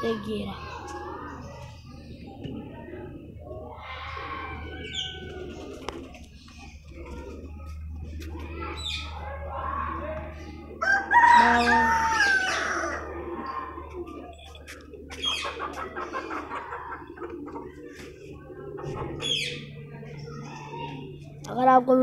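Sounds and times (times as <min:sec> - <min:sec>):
chickens clucking: 0:00.0 - 0:21.4
rooster crowing: 0:10.8 - 0:13.1.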